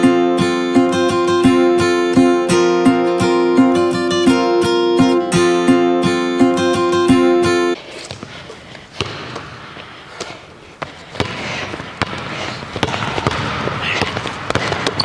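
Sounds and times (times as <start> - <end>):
strummed guitar music: 0.0 - 7.8
basketball bouncing on wooden floor: 10.2 - 15.0.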